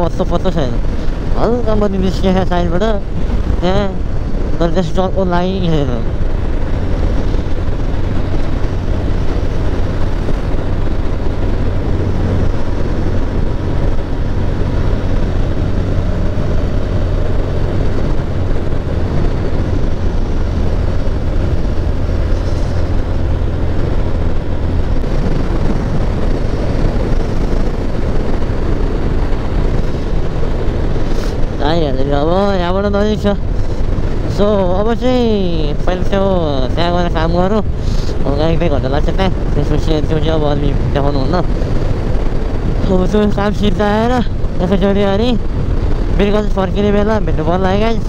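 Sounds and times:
heavy wind rush: 0.0 - 48.0
motorcycle engine hum: 0.0 - 48.0.

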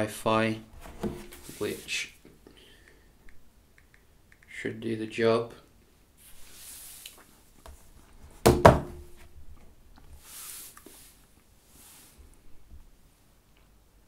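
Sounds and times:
soft brushing: 0.7 - 2.2, 6.2 - 8.2, 10.1 - 12.6.

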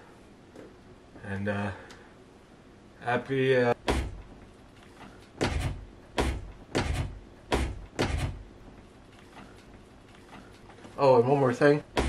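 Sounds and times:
door banging: 3.8 - 4.4, 5.3 - 8.5.

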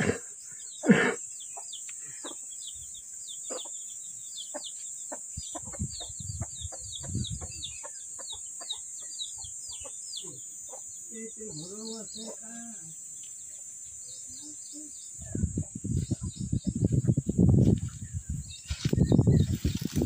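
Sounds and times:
chickens clucking: 0.0 - 12.6, 13.2 - 18.0
small birds chirping: 0.0 - 20.0.

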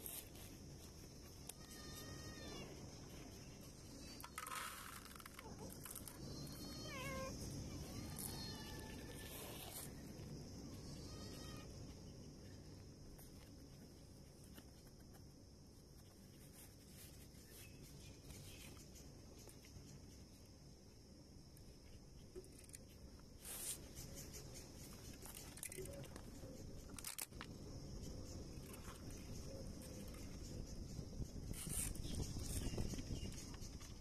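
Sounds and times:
cat meowing: 6.3 - 9.2.

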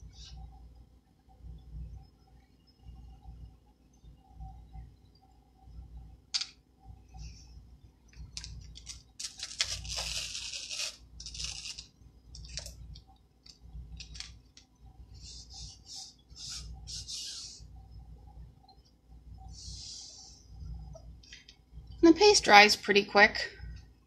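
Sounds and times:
plastic sheet rustling and crackling: 8.4 - 12.7.

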